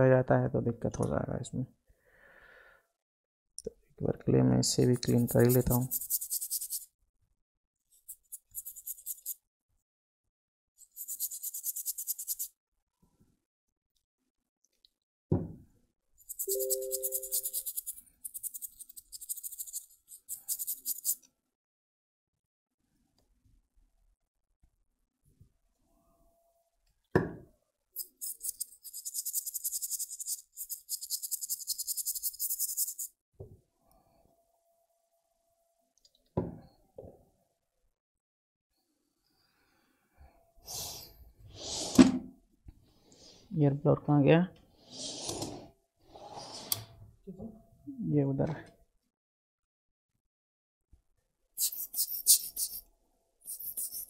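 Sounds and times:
knock: 15.3 - 15.6, 27.2 - 27.5, 36.4 - 37.1.

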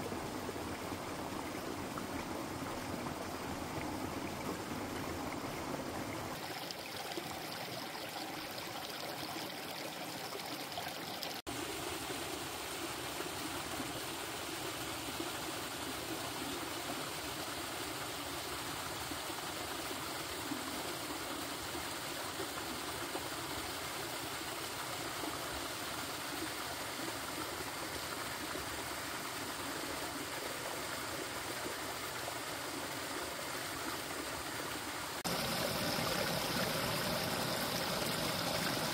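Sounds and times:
stream splashing over rocks: 30.2 - 38.9.

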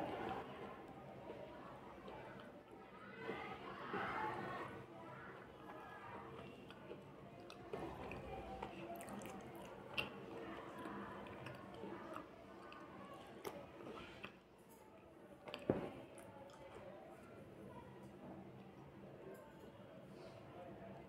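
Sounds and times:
chewing crunches: 6.4 - 14.4.

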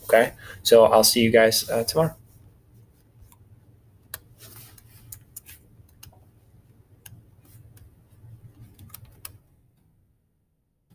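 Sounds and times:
low steady hum: 0.0 - 10.9
computer mouse clicks: 4.1 - 6.2, 8.5 - 9.4.

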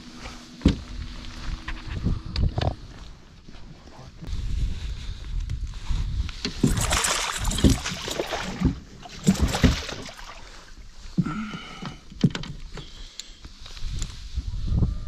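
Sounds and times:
water splashing in a net: 6.6 - 10.8.

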